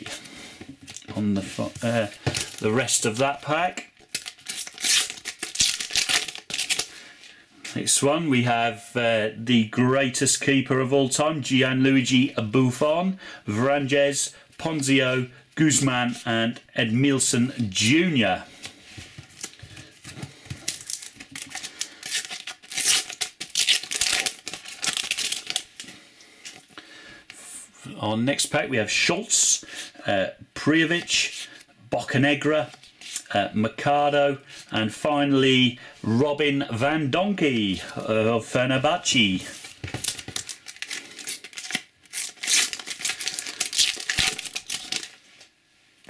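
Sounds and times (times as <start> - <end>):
sticker packet tearing: 4.0 - 6.9, 20.7 - 25.7, 40.0 - 45.2
wrapper crinkling: 4.0 - 6.9, 19.3 - 26.6, 39.6 - 45.4
sticker packet being torn open: 40.0 - 45.2.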